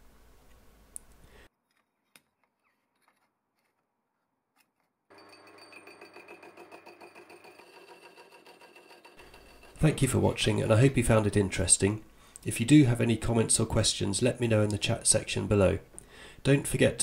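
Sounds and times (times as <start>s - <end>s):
metal lathe running: 5.1s - 9.9s.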